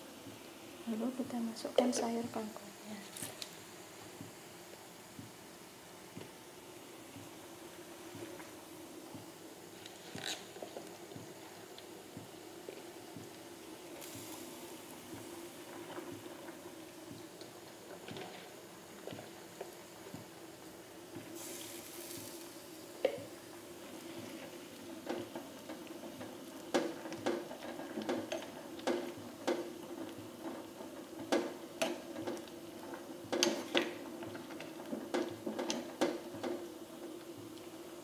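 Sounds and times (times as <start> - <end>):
ladle knocking and scraping pot: 25.0 - 36.7.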